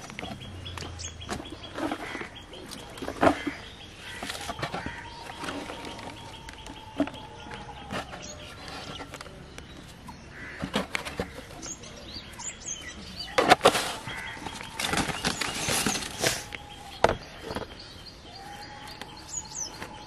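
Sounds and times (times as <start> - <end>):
birds chirping: 0.0 - 20.0
plastic bottle knocks and rustles: 17.0 - 17.8.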